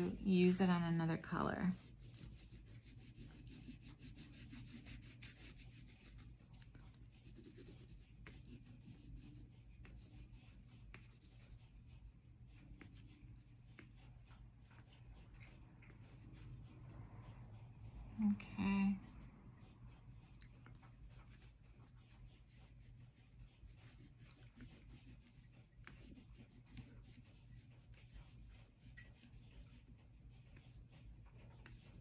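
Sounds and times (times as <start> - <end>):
pastel scratching on paper: 1.6 - 6.4, 7.0 - 16.8, 21.1 - 32.0.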